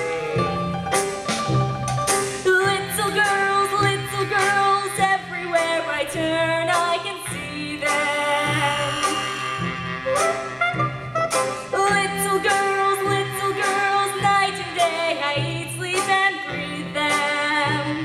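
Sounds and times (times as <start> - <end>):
instrumental accompaniment: 0.0 - 18.0
woman singing with vibrato: 2.4 - 10.1, 11.6 - 18.0.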